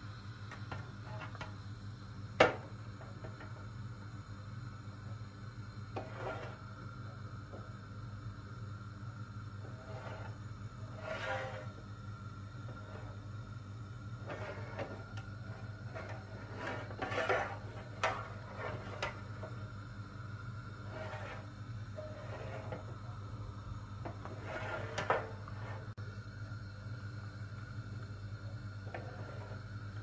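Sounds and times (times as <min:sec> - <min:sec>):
low hum: 0:00.0 - 0:30.0
metal tray scraping on hob: 0:01.0 - 0:01.5, 0:06.0 - 0:06.6, 0:09.6 - 0:11.8, 0:12.7 - 0:13.3, 0:14.2 - 0:19.7, 0:20.8 - 0:23.2, 0:24.0 - 0:26.0, 0:28.8 - 0:29.7.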